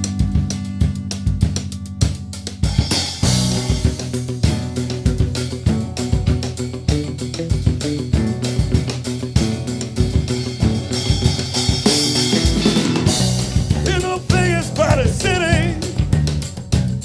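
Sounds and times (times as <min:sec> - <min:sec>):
rock band playing: 0:00.0 - 0:17.0
man singing: 0:13.7 - 0:16.0.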